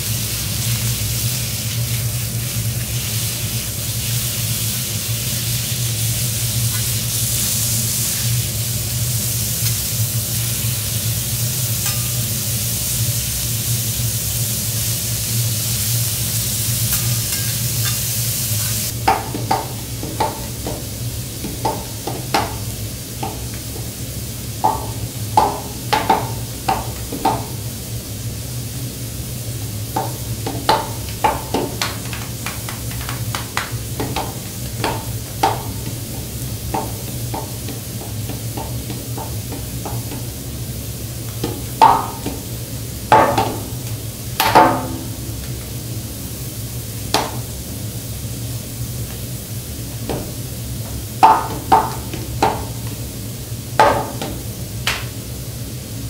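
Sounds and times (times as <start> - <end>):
meat sizzling on a griddle: 0.0 - 56.0
steady low hum: 0.0 - 56.0
shakers clicking and tapping: 30.0 - 40.3.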